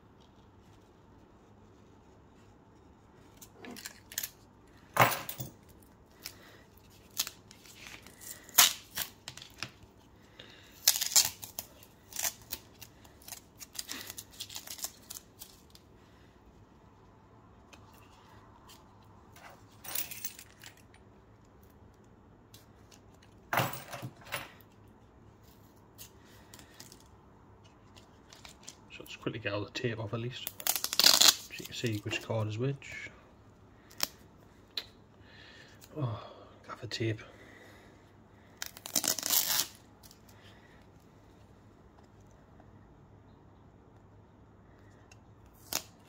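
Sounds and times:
tape tearing away: 0:06.8 - 0:09.6, 0:10.8 - 0:15.8, 0:30.5 - 0:32.0, 0:38.6 - 0:40.2, 0:45.5 - 0:46.0.

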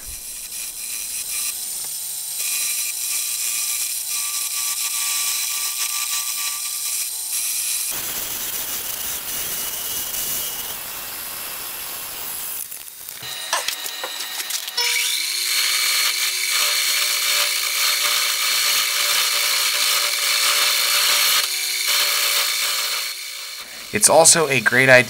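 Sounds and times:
faint lathe whine: 0:00.0 - 0:12.5
wood lathe tool scraping: 0:00.0 - 0:25.0.

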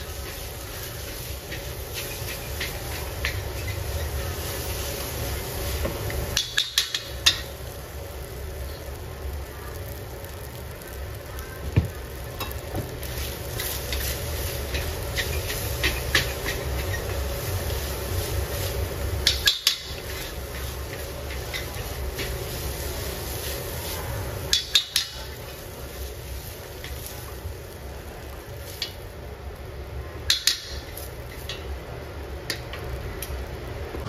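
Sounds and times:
spatula scraping in a wok: 0:00.0 - 0:07.6, 0:12.5 - 0:27.4
frying sizzle: 0:00.0 - 0:34.0.

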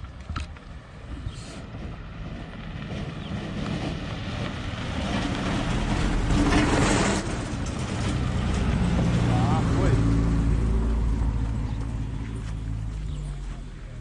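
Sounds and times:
tyres on dirt road: 0:00.0 - 0:14.0
car engine hum: 0:05.4 - 0:14.0.

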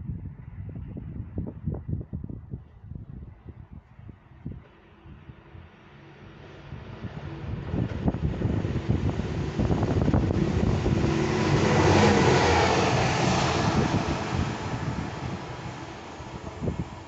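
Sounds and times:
rail machine passing: 0:05.1 - 0:17.0.

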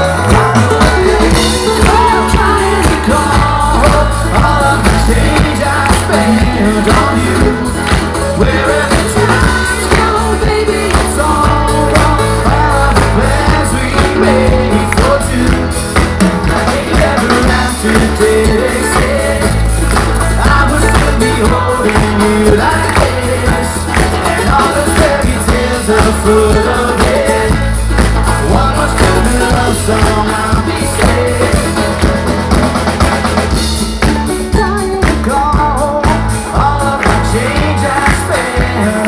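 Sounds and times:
choir and voices singing: 0:00.0 - 0:32.2, 0:34.8 - 0:39.0
steady beat: 0:00.0 - 0:39.0
ukuleles and acoustic guitar: 0:00.0 - 0:39.0.

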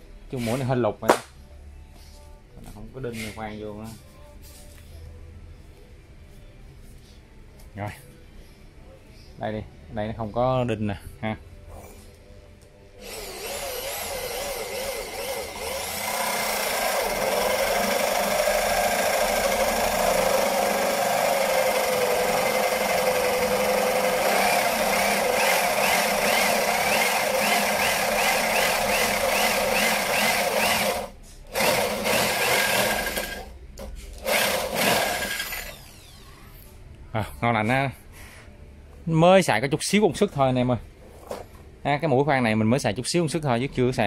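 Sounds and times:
electric drill boring into wood: 0:13.0 - 0:33.5, 0:34.2 - 0:36.3.

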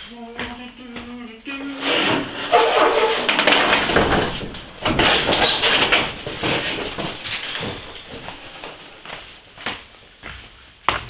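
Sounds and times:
rolling door rumbling shut: 0:01.6 - 0:09.6.

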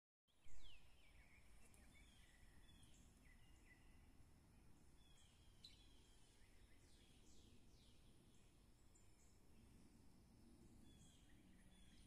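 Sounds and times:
bird chirps: 0:00.4 - 0:04.0, 0:05.0 - 0:08.0.

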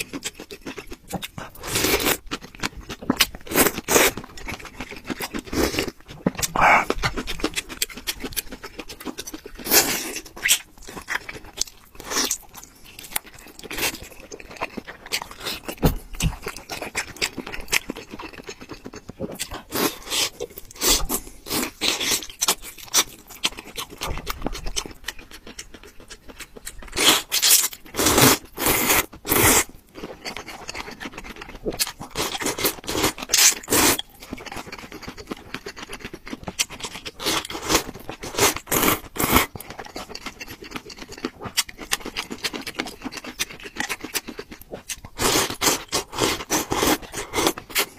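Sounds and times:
wet chewing: 0:00.0 - 0:47.9
slurping noodles and broth: 0:28.0 - 0:29.7.

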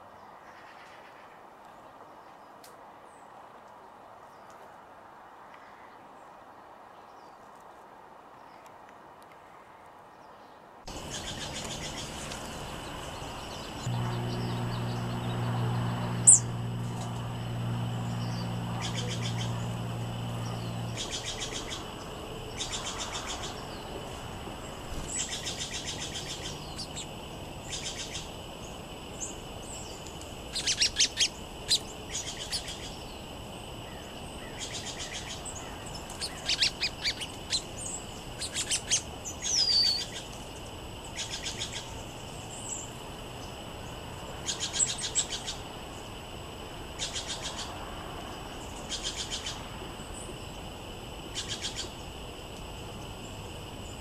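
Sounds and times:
songbirds chirping and trilling: 0:10.1 - 0:54.0
faint high-pitched hum: 0:10.9 - 0:54.0.

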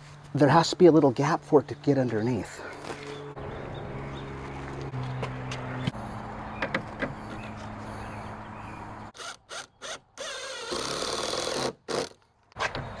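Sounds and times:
cordless drill driving screws: 0:09.2 - 0:12.2.

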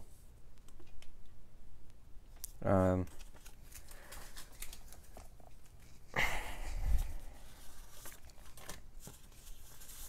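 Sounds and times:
paper rustling: 0:03.0 - 0:06.1, 0:07.0 - 0:10.0.

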